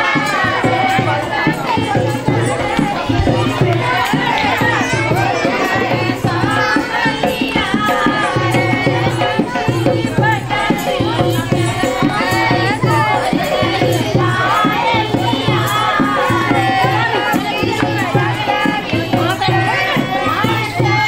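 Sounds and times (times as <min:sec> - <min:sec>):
hand drum beat: 0:00.0 - 0:21.0
women singing folk song: 0:00.0 - 0:21.0.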